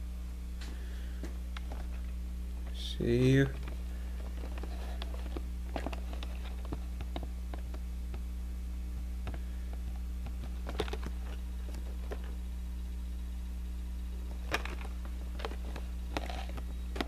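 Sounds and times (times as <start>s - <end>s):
low electrical hum: 0.0s - 17.0s
handling clicks and taps: 3.5s - 8.2s.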